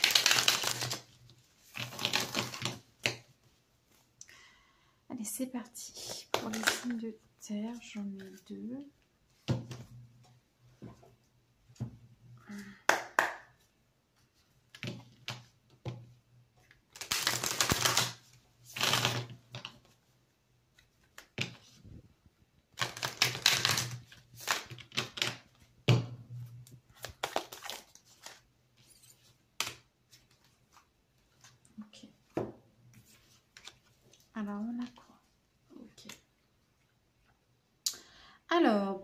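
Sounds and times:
cards riffle-shuffled: 0.0 - 3.2, 16.9 - 20.0, 22.8 - 25.5, 27.0 - 31.6.

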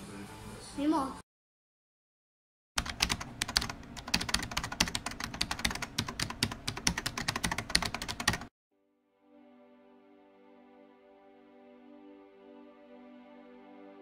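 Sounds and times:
rapid keyboard typing clicks: 2.8 - 8.5.

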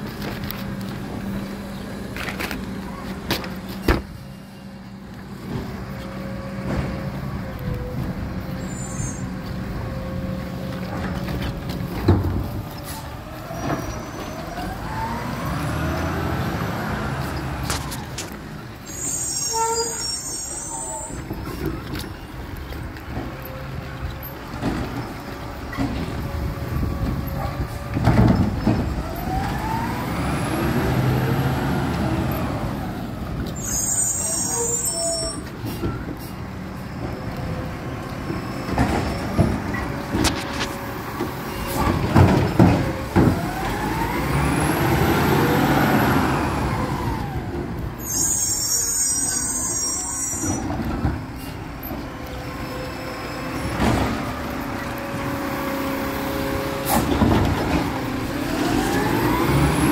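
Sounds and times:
garbage truck engine: 0.0 - 59.9
air brakes hissing: 18.8 - 21.6, 33.5 - 36.5, 48.0 - 50.7
clanks and knocks: 27.0 - 29.0, 38.2 - 43.6.

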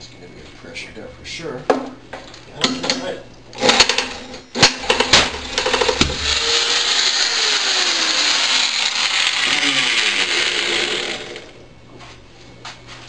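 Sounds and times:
electric drill whirring: 5.4 - 11.6.

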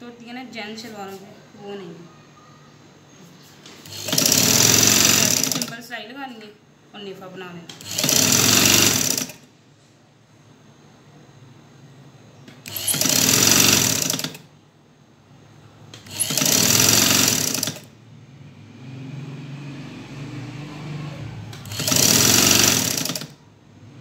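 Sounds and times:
sewing machine stitching: 3.8 - 5.8, 7.7 - 9.4, 12.6 - 14.5, 16.0 - 17.9, 21.5 - 23.4.

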